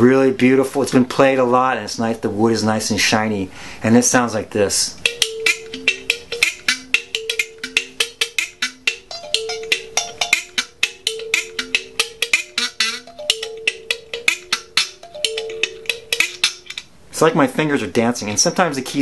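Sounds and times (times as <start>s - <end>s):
kalimba plucked notes: 5.0s - 16.8s.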